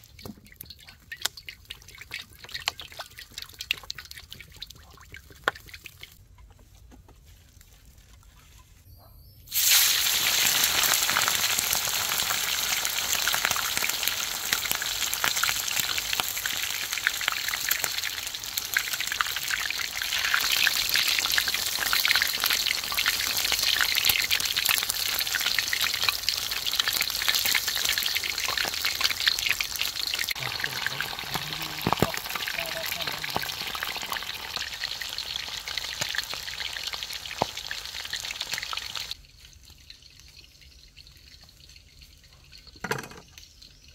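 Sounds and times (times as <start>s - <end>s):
food sizzling in hot oil: 9.5s - 43.9s.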